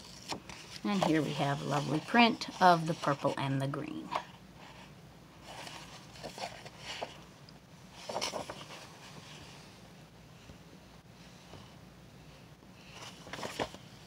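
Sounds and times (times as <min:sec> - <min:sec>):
paper rustling and crinkling: 0:00.0 - 0:03.4, 0:05.4 - 0:07.2, 0:07.9 - 0:09.7, 0:12.8 - 0:14.0.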